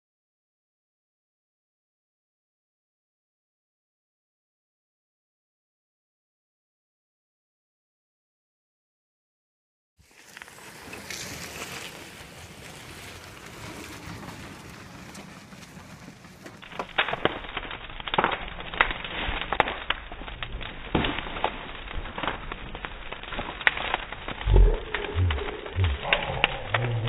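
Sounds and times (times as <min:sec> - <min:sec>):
bonfire crackling and popping: 0:10.0 - 0:27.0.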